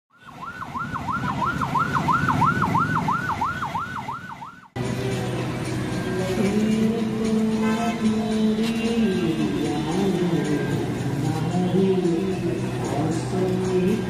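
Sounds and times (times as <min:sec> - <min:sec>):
siren wailing: 0:00.1 - 0:04.8.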